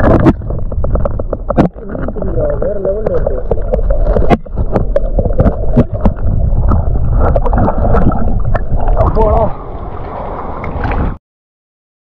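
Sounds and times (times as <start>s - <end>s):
sharp knocks and splashes: 0.0s - 11.2s
stream water sloshing and gurgling: 0.0s - 11.2s.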